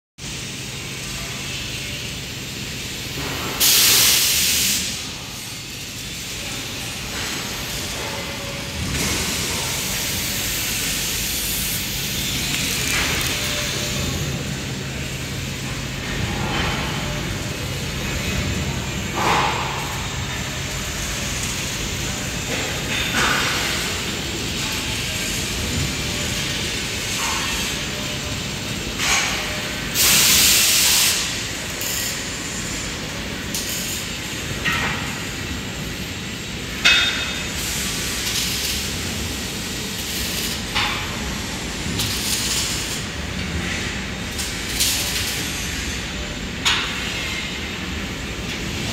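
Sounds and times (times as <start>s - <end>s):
workshop background noise: 0.2s - 48.9s.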